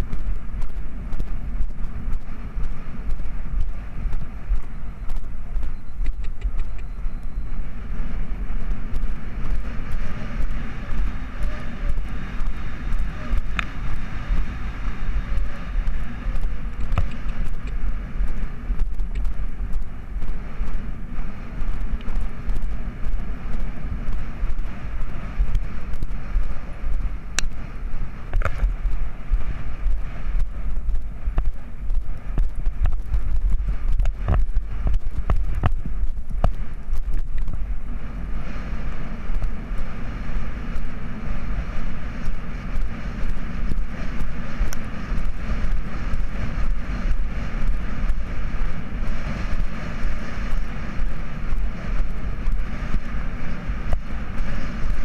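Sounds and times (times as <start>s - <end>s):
wind buffeting microphone: 0.0s - 55.0s
sharp clicks: 3.1s - 7.3s.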